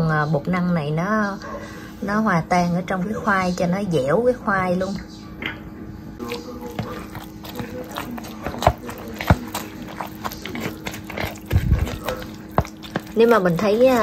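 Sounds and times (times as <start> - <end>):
steady low hum: 0.0 - 14.0
metal fork scraping a bowl: 6.2 - 14.0.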